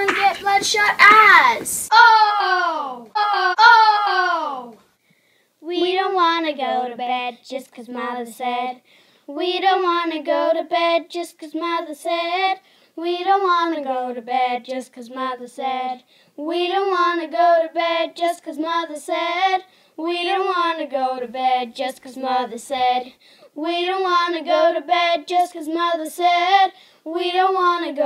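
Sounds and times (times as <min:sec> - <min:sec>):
child singing: 0:00.0 - 0:04.8, 0:05.6 - 0:28.0.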